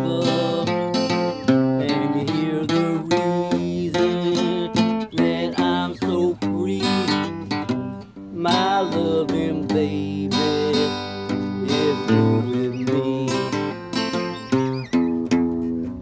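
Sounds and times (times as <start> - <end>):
acoustic guitar strumming: 0.0 - 16.0.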